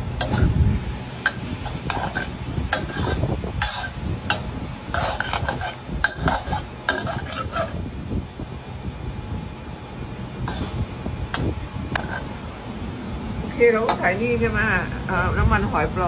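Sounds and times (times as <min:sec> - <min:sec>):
metal spatula scraping wok: 0:00.1 - 0:07.9, 0:10.4 - 0:12.5.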